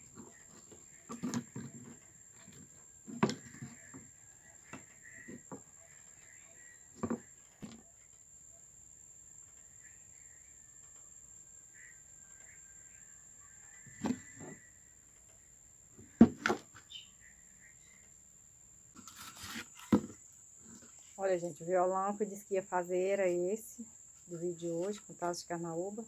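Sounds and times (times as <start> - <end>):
faint chirping: 0.0 - 19.0.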